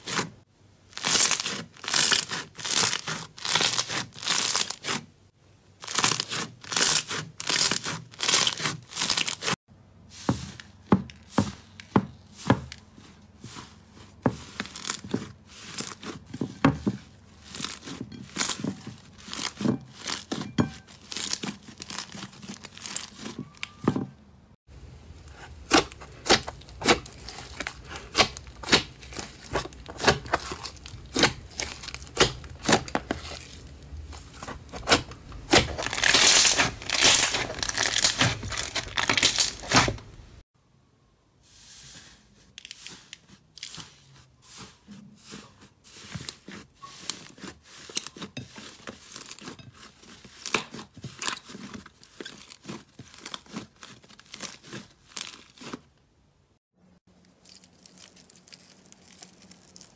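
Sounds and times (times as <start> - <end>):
slime crackling and popping: 1.0 - 5.0, 25.7 - 33.6, 34.8 - 40.1, 57.3 - 59.9.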